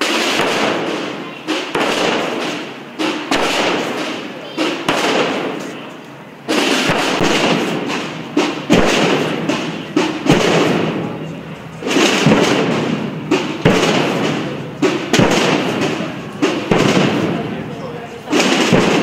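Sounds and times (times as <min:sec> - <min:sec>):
continuous drum roll: 0:00.0 - 0:19.0
heavy bass drum strokes: 0:06.4 - 0:19.0.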